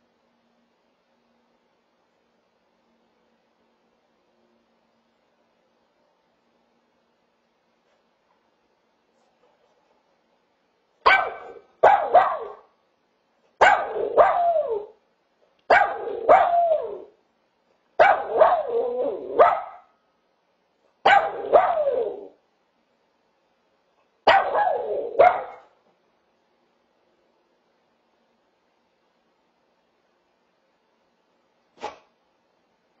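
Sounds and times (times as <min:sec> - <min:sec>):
small dog barking and yowling: 0:11.0 - 0:12.7, 0:13.6 - 0:15.0, 0:15.7 - 0:17.2, 0:18.0 - 0:20.0, 0:21.0 - 0:22.4, 0:24.3 - 0:25.7.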